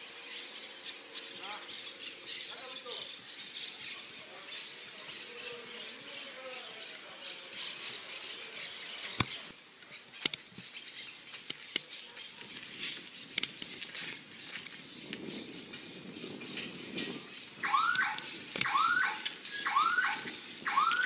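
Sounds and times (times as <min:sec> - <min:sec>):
small birds chirping: 0:00.0 - 0:21.0
sharp clicks: 0:17.9 - 0:21.0.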